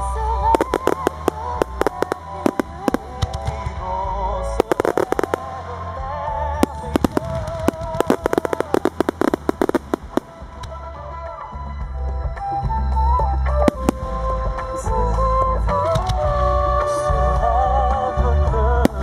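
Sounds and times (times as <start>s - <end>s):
music: 0.0s - 19.0s
fireworks bursting: 0.4s - 11.4s, 13.6s - 15.2s.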